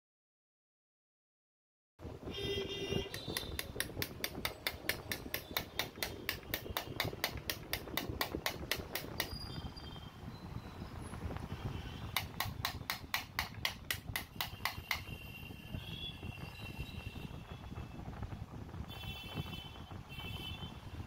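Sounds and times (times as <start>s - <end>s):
rapid sharp tapping: 3.0s - 9.4s, 12.1s - 15.2s.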